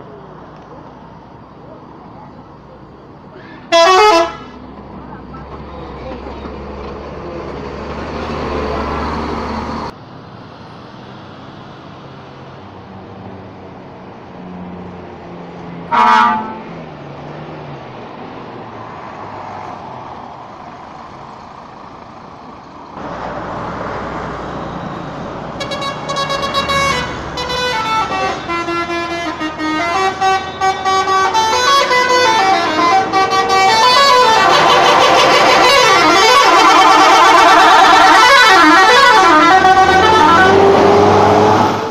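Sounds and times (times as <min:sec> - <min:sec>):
buses driving past: 0:00.0 - 0:41.9
multi-tone bus horn melody: 0:03.6 - 0:04.6, 0:15.9 - 0:16.8, 0:25.6 - 0:41.9
short horn blast: 0:15.9 - 0:16.7, 0:25.6 - 0:40.9.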